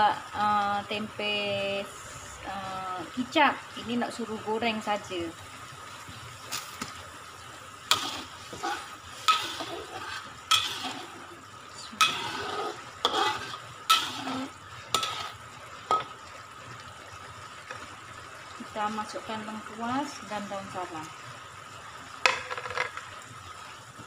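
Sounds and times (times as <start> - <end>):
paste sizzling in oil: 0.8 - 21.0
ladle scraping a wok: 7.8 - 16.2.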